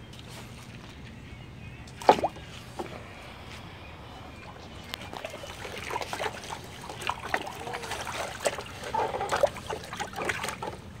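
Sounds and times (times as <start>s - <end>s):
dog splashing in shallow water: 5.0s - 11.0s.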